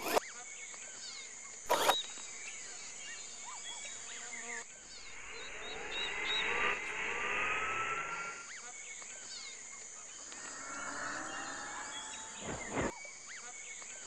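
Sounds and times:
robot motor whirring: 0:00.0 - 0:00.2, 0:01.7 - 0:02.0
insects buzzing: 0:00.0 - 0:09.4, 0:10.1 - 0:14.0
birds chirping: 0:04.9 - 0:08.5, 0:10.3 - 0:12.9.

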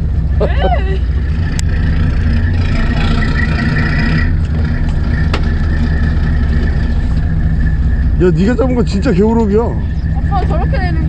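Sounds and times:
boat engine idling: 0:00.0 - 0:11.0.

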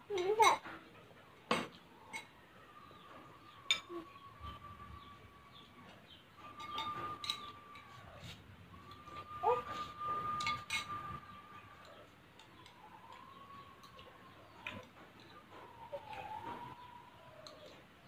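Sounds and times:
metal spoon clinking glass bowl: 0:03.7 - 0:04.0, 0:06.5 - 0:07.9, 0:10.4 - 0:11.0
high-pitched tone: 0:08.8 - 0:11.4.

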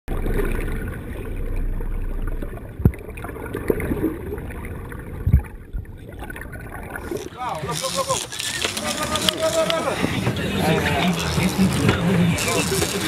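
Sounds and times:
muffled underwater water rush: 0:00.1 - 0:07.6.

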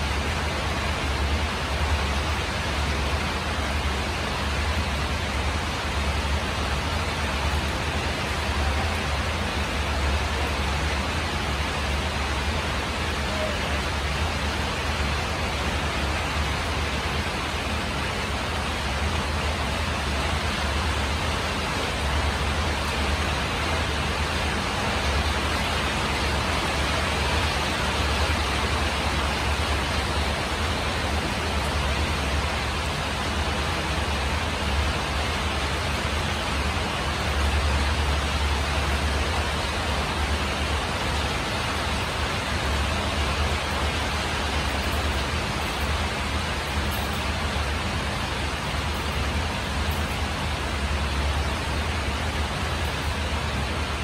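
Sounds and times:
rain drumming on a tin roof: 0:00.0 - 0:54.0.

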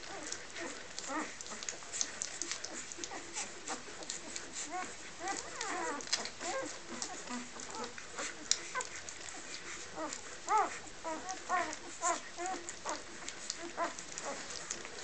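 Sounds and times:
puppies squeaking and whimpering: 0:00.0 - 0:14.9
puppies suckling clicks: 0:00.0 - 0:15.0.

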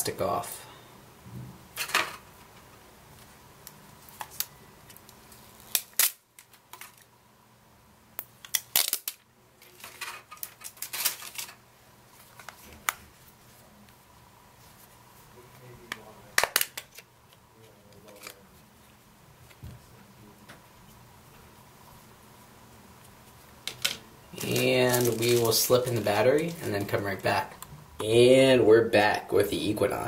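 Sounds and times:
plastic film peeling: 0:03.7 - 0:07.1, 0:08.3 - 0:13.2, 0:23.7 - 0:27.7
crackling plastic rustles: 0:08.5 - 0:13.7, 0:23.6 - 0:27.6.

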